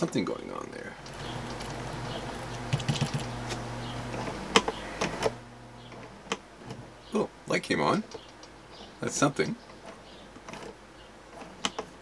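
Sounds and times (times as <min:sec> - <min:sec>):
electric motor hum: 0:01.0 - 0:07.0.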